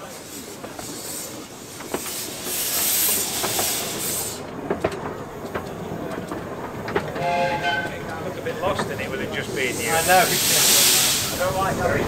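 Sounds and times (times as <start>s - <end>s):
steam hissing from locomotive: 0.0s - 4.6s, 8.6s - 12.0s
locomotive clanks and knocks: 4.5s - 9.6s.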